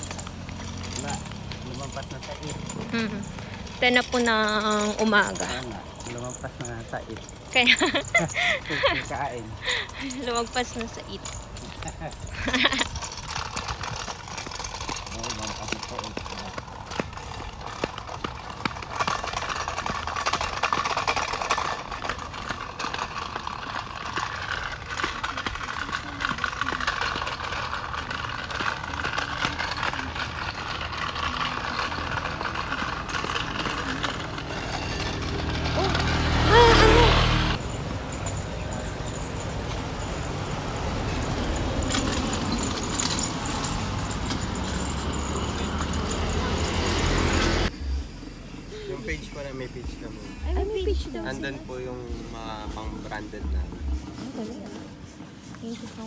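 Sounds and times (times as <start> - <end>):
footsteps on a road: 0.0 - 56.0
low traffic rumble: 0.0 - 56.0
car driving past: 34.4 - 37.8.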